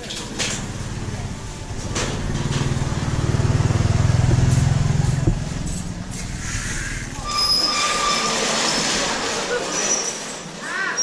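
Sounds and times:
vehicle engine running: 0:00.0 - 0:07.2
high-pitched squeal: 0:06.1 - 0:09.0.

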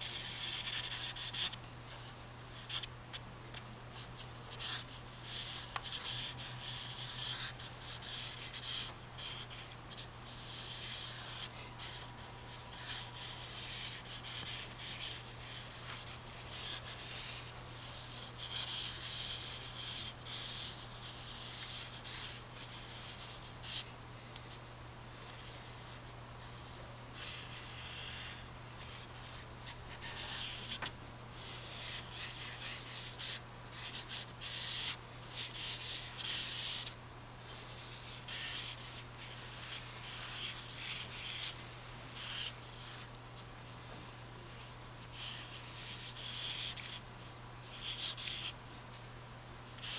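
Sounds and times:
steady low hum: 0:00.0 - 0:49.9
charcoal scraping on paper: 0:04.6 - 0:23.9, 0:26.6 - 0:36.9, 0:37.5 - 0:41.6, 0:42.2 - 0:43.1.

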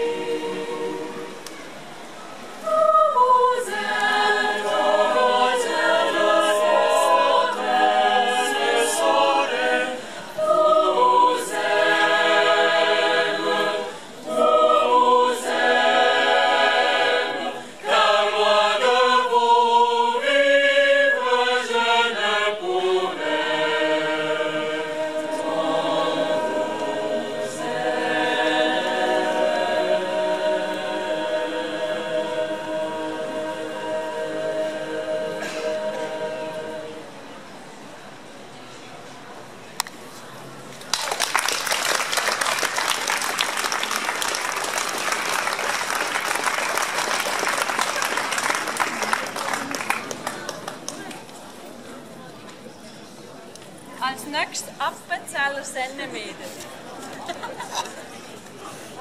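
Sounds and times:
choir singing a cappella: 0:00.0 - 0:01.8, 0:02.5 - 0:38.3.

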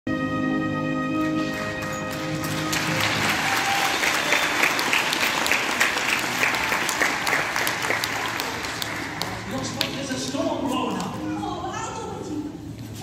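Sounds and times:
music: 0:00.0 - 0:13.0
audience applauding: 0:01.2 - 0:10.5.

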